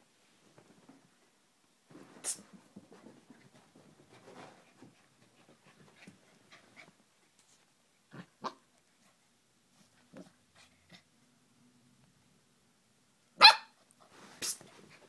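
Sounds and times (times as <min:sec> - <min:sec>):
puppy barking: 0:13.4 - 0:13.8.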